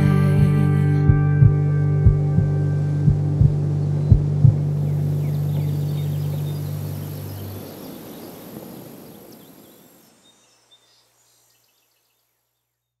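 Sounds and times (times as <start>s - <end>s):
low steady hum: 0.0s - 8.3s
faint bird chirps: 3.8s - 13.0s.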